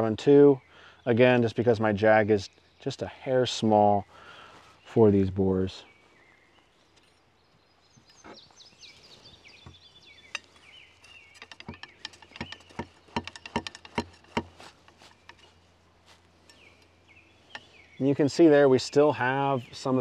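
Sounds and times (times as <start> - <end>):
birds singing: 0.0 - 20.0
cleaning rod knocking in barrel: 11.4 - 14.7.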